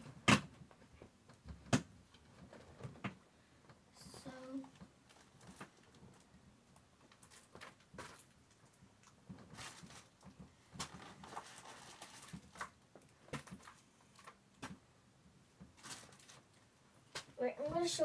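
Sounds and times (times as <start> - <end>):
plastic bags rustling and crinkling: 4.2 - 6.3, 7.0 - 14.8, 15.6 - 17.9.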